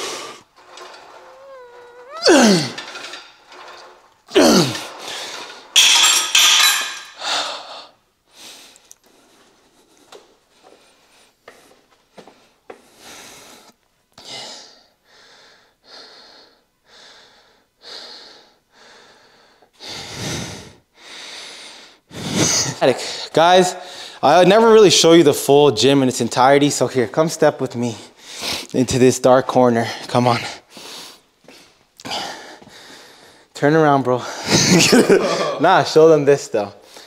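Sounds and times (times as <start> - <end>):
man panting: 1.4 - 2.8, 12.4 - 24.2, 30.7 - 33.5.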